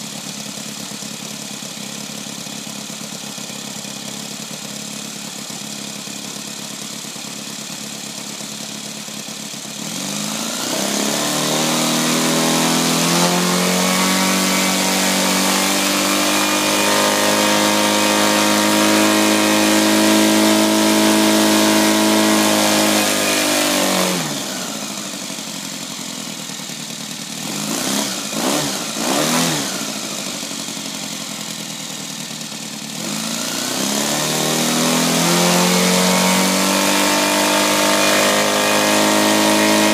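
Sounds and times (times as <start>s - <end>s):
model aircraft engine revving: 9.8s - 39.9s.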